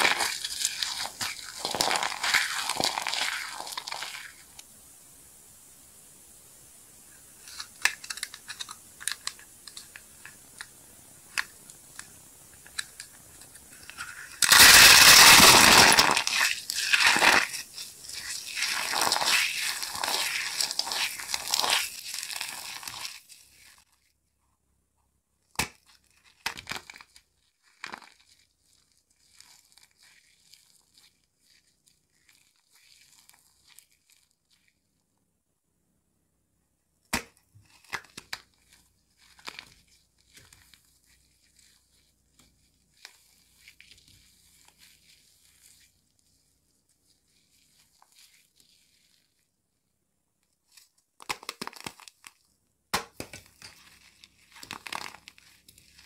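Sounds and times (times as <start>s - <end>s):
soap balls cracking and crushing: 0.0s - 4.7s, 7.4s - 23.9s, 25.5s - 34.4s, 37.1s - 45.9s, 50.8s - 56.0s.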